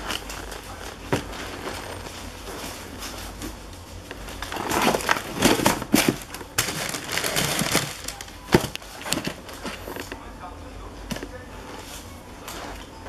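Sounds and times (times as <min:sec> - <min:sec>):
cardboard boxes being handled: 0:00.0 - 0:10.2
tissue paper crinkling: 0:04.2 - 0:10.1.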